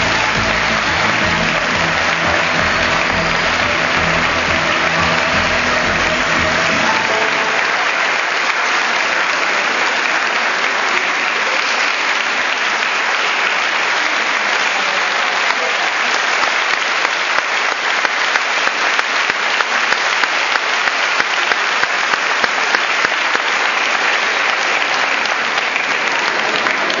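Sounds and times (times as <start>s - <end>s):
show music: 0.0s - 9.0s
audience applauding: 0.0s - 27.0s.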